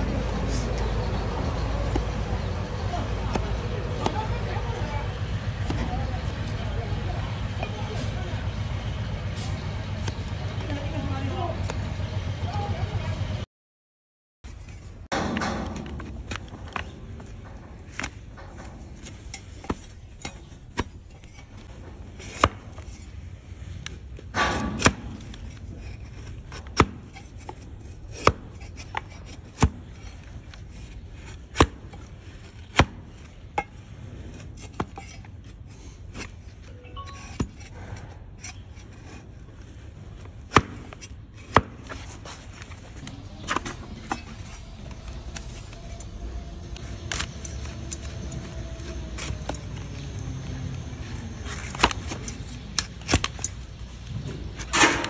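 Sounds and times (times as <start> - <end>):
knife scraping hoof: 17.9 - 45.7.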